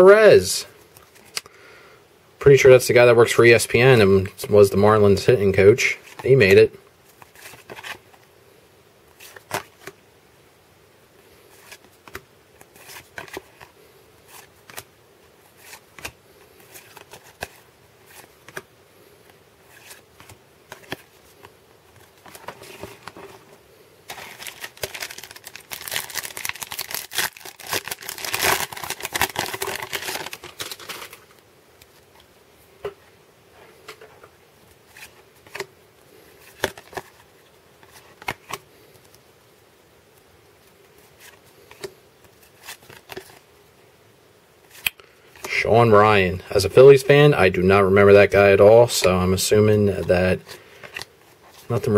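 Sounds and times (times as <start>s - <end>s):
card pack wrapper crinkling: 11.5s - 13.7s, 24.1s - 32.0s, 36.4s - 38.6s
cards being flipped: 11.6s - 13.7s, 14.3s - 14.9s, 15.5s - 18.7s, 19.6s - 23.5s.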